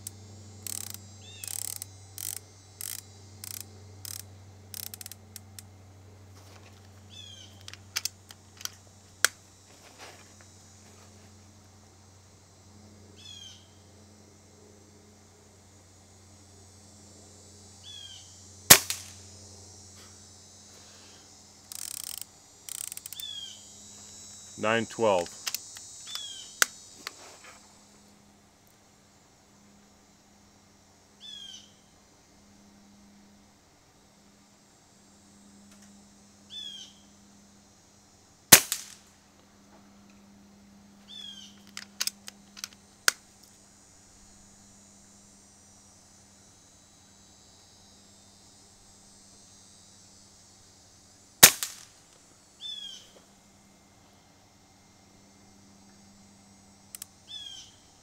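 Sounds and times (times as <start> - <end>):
rifle action rattling clicks: 0.7 - 5.7, 7.6 - 8.8, 21.7 - 23.3, 41.6 - 43.2
air rifle shot crack: 18.7 - 19.1, 38.5 - 39.0, 51.4 - 51.9.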